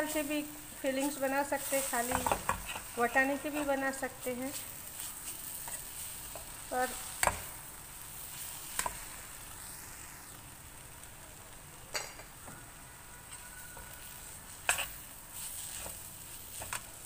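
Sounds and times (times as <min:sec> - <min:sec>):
soft sizzle: 0:00.0 - 0:17.0
metal spoon scraping a pan: 0:01.0 - 0:07.4, 0:13.3 - 0:17.0.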